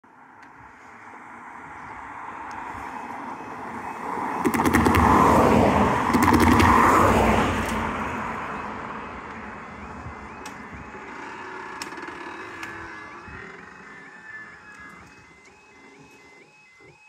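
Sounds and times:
car passing by: 0.6 - 11.4
wheels knocking over rails: 4.4 - 7.8.

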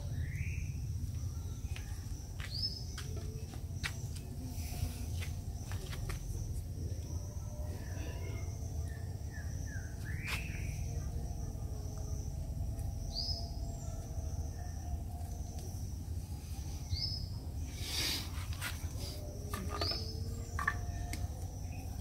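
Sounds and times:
high insect drone: 0.0 - 22.0
steady low rumble: 0.0 - 22.0
bird calls: 16.8 - 21.9.

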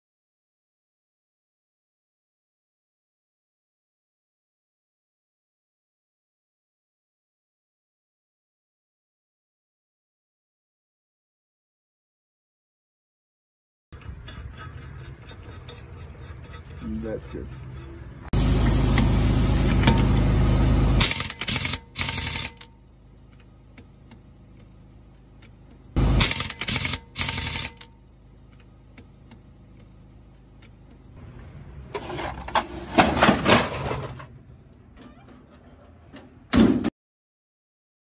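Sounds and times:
impact wrench hammering: 26.2 - 27.9.

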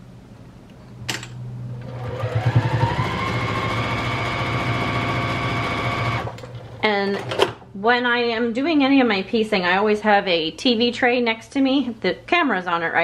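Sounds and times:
sewing machine stitching: 1.8 - 7.6.

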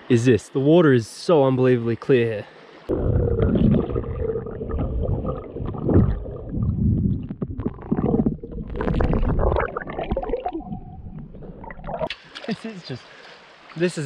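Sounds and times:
water sloshing and gurgling: 2.9 - 12.5.

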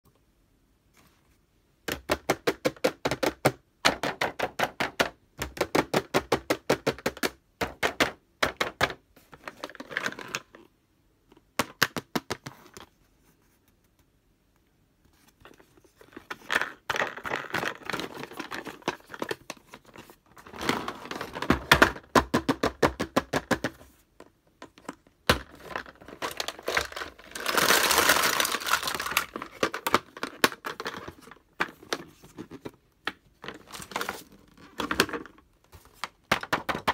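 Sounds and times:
plastic clicking and rubbing: 15.1 - 36.9.

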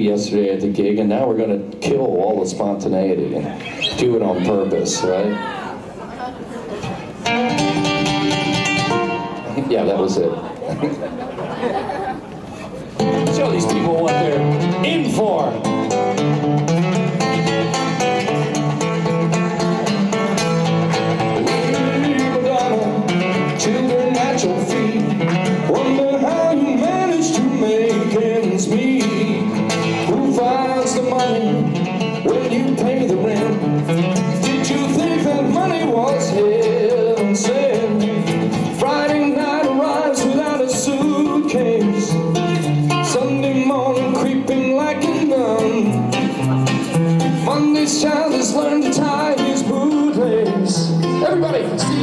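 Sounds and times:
guitar playing: 3.4 - 11.6, 12.2 - 52.0
man singing into a microphone: 21.3 - 52.0.

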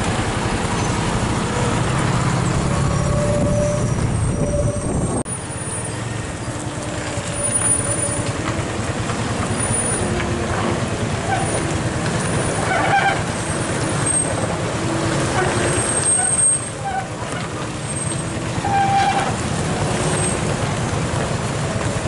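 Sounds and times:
diesel truck engine rumbling: 0.0 - 22.0
brief high-pitched squeal: 2.3 - 6.0.

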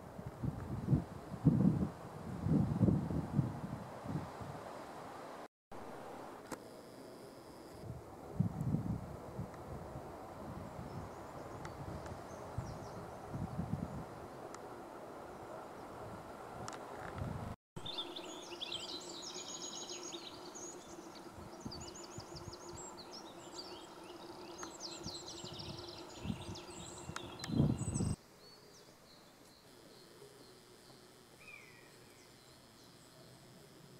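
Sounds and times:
songbirds chirping: 17.8 - 33.7.

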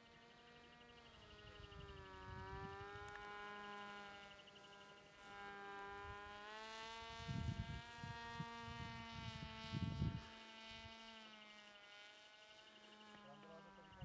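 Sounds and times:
drone propeller buzzing: 0.0 - 14.0
wind gusts on microphone: 7.0 - 11.0.

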